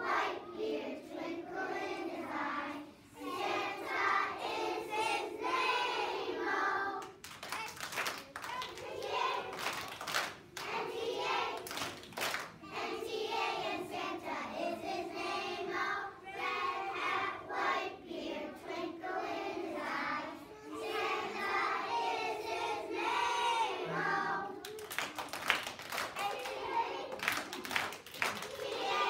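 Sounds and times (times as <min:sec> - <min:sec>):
children's choir singing: 0:00.0 - 0:07.3, 0:08.4 - 0:29.0
sharp claps: 0:07.0 - 0:10.8, 0:11.6 - 0:12.6, 0:24.6 - 0:28.9.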